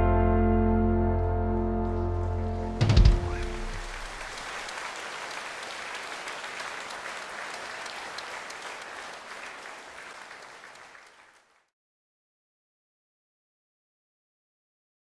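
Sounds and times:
large audience applauding: 1.9s - 11.7s.

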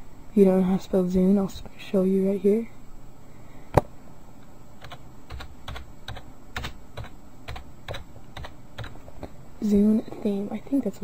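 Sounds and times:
computer keyboard typing: 4.8s - 9.0s.

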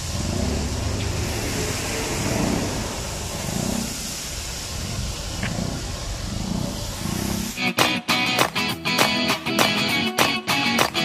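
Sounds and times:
street traffic rumble: 0.0s - 10.0s.

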